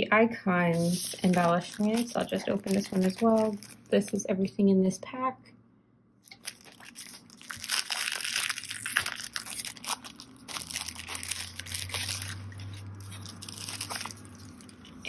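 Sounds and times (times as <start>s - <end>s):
cardstock pieces rustling and sliding: 0.7s - 3.6s
plastic bag crinkling: 0.7s - 4.2s, 6.3s - 15.0s.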